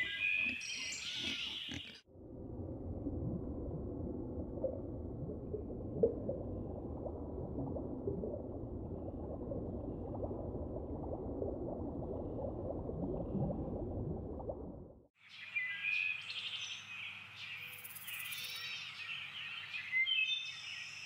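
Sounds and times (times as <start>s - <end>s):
muffled water bubbling: 0.0s - 15.1s.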